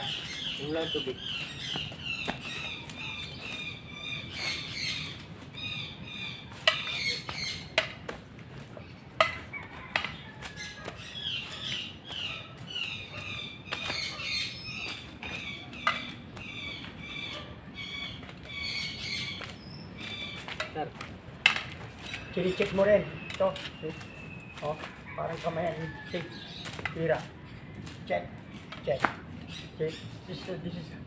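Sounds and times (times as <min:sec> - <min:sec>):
bird chirping: 0:00.0 - 0:07.9, 0:08.7 - 0:21.0, 0:21.8 - 0:25.0.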